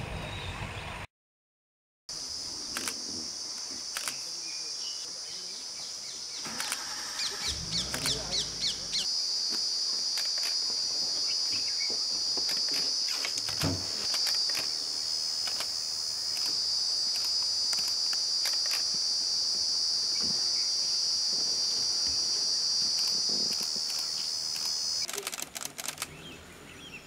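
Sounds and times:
high-pitched insect chorus: 0:02.1 - 0:26.0
faint clicks: 0:07.7 - 0:09.0.

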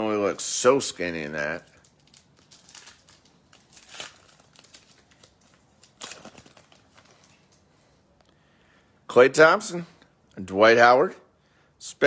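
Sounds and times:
plastic wrapper crinkling and tearing: 0:01.3 - 0:07.7.

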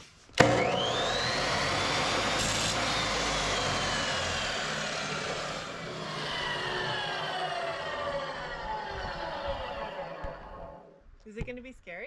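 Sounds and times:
chop saw motor whine: 0:00.4 - 0:10.9.

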